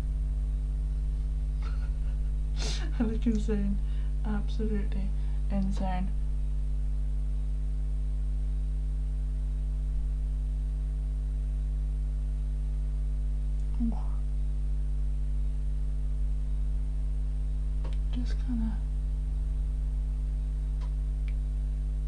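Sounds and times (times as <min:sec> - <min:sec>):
electrical mains hum: 0:00.0 - 0:22.0.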